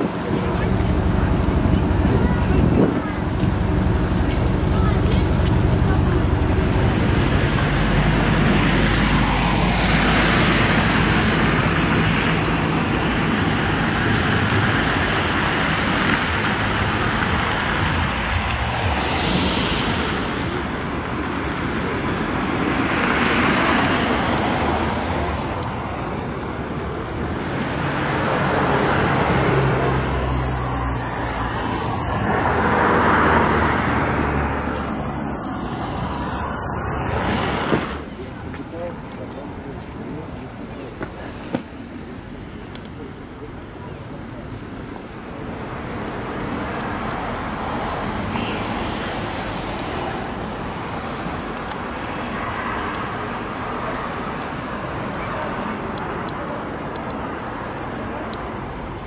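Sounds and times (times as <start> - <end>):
low engine rumble: 0.0 - 37.3
vehicles passing: 0.0 - 59.0.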